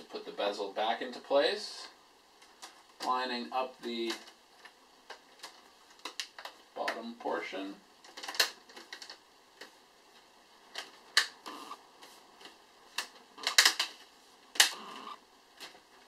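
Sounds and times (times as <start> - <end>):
plastic clips snapping: 4.1 - 6.6, 13.0 - 13.9, 14.6 - 14.8.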